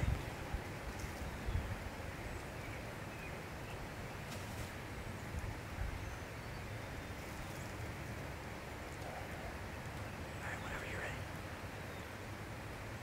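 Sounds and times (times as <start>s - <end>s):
faint bird chirps: 9.0s - 12.1s.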